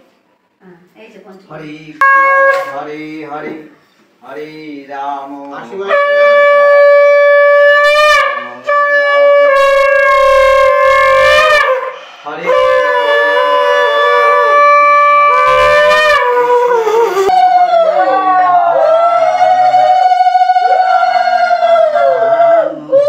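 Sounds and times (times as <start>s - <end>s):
conch shell blasts: 2.0s - 3.2s, 5.8s - 17.4s.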